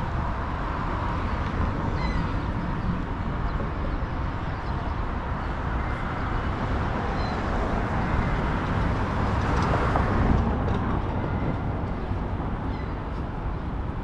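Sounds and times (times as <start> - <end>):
city street traffic: 0.0 - 14.0.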